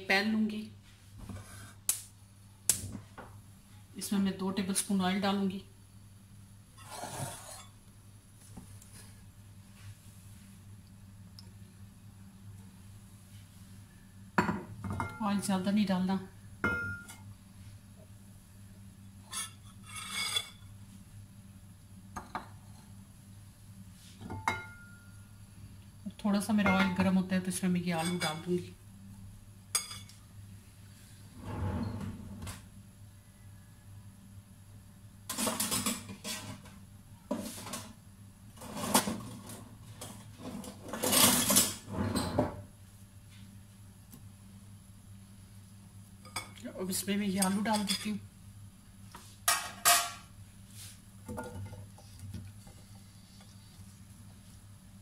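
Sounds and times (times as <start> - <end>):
low steady hum: 0.0 - 55.0
ringing scrape of kitchenware: 6.8 - 7.8, 19.2 - 20.7
kitchenware clattering: 16.6 - 17.2, 24.2 - 25.0, 26.6 - 27.1, 28.0 - 28.5, 35.3 - 36.7, 38.6 - 42.6, 49.4 - 50.3, 51.2 - 52.1.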